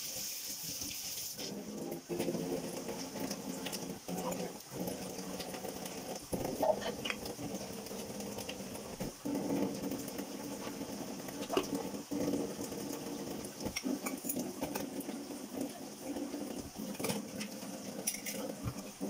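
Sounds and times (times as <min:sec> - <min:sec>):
sponge scrubbing dishes: 0:00.0 - 0:19.0
dishes clinking: 0:18.0 - 0:18.8.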